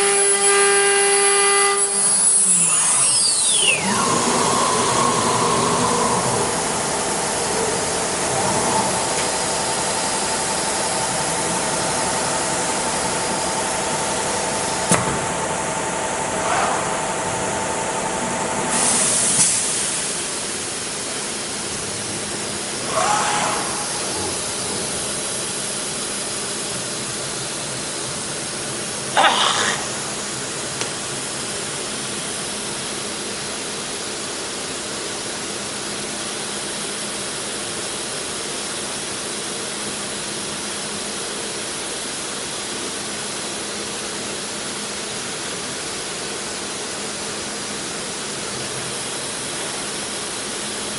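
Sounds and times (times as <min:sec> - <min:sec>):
wood router hissing and humming: 0:00.0 - 0:14.9.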